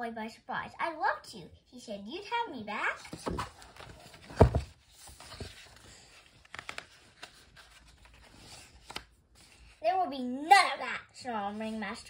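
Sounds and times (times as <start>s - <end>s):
paper rustling: 3.0s - 9.8s.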